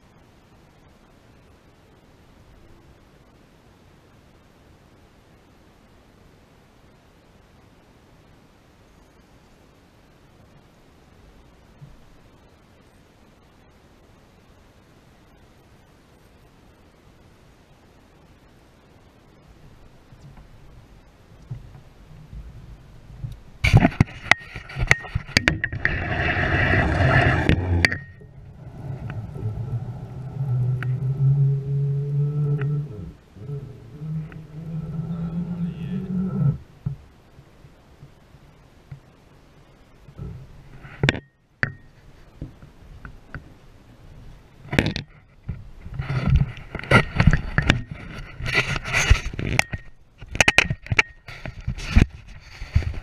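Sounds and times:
knocks and scrapes on boat: 23.2 - 28.1, 44.7 - 53.0.

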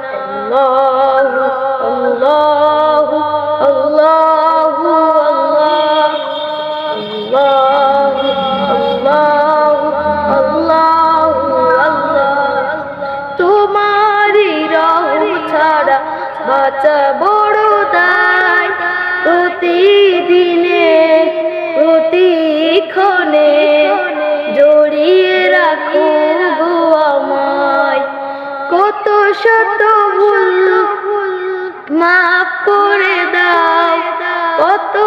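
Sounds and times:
boy singing devotional song: 0.0 - 35.0.

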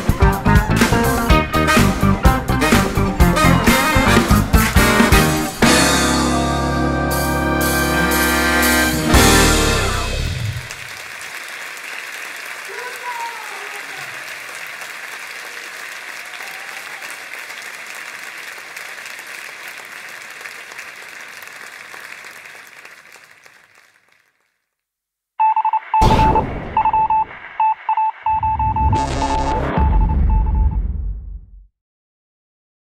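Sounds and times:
deep throbbing bass: 0.0 - 5.5
audience applauding: 0.0 - 5.8, 9.1 - 24.5
short electronic beeps: 25.4 - 30.8.

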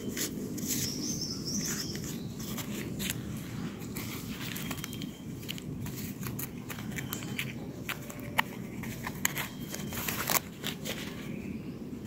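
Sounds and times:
small crackles and rustles: 0.1 - 11.5.

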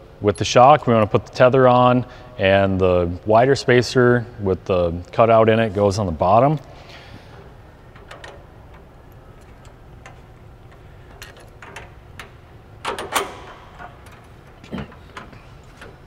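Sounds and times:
low steady hum: 0.0 - 16.0
metal clatter: 7.4 - 16.0
metal clicks and clinks: 7.9 - 16.0.

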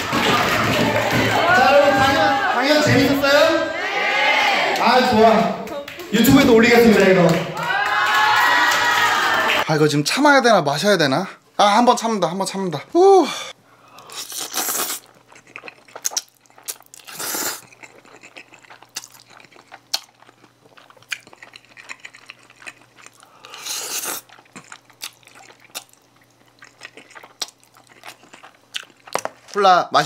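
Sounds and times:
wet chewing: 13.9 - 29.6
person slurping spaghetti: 14.0 - 19.8, 21.1 - 25.9.

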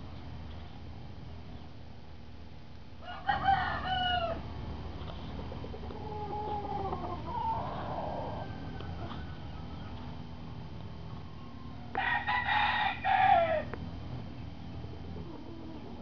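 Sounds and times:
roosters crowing: 3.0 - 4.6, 5.2 - 13.9, 14.9 - 16.0.

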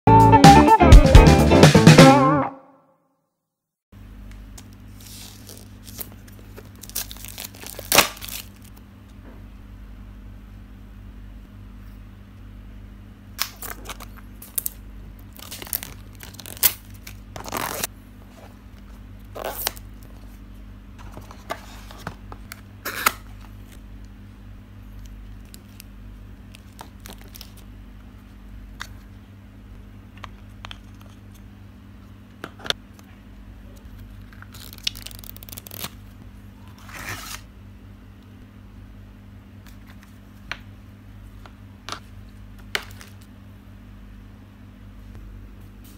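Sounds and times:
steady low hum: 4.0 - 45.9
cardboard and plastic packaging tearing: 5.0 - 8.7, 13.4 - 17.9, 34.2 - 36.0.

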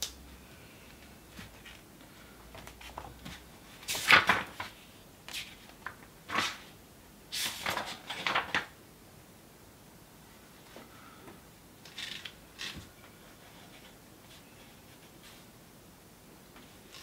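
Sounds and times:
book pages turning: 2.6 - 6.7.

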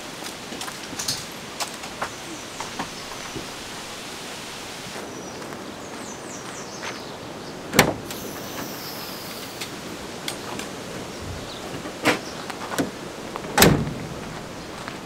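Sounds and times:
outdoor hiss: 0.0 - 5.5, 7.0 - 15.0
tailgate clunk: 7.7 - 8.8, 11.8 - 14.2.

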